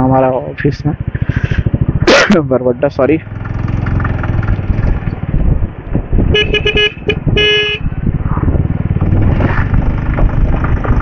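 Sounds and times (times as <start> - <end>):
motorcycle engine running: 0.0 - 11.0
vehicle horn toots: 6.3 - 7.9.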